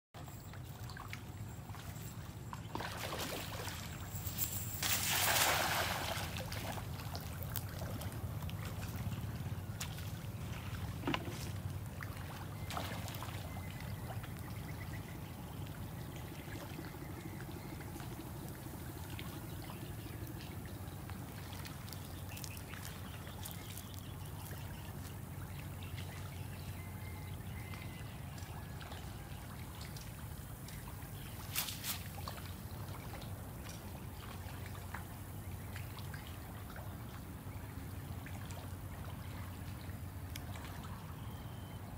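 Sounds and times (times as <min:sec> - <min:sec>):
steady low hum: 0:00.2 - 0:31.5
small water splashes: 0:00.2 - 0:41.8
water pouring off net: 0:02.8 - 0:07.6.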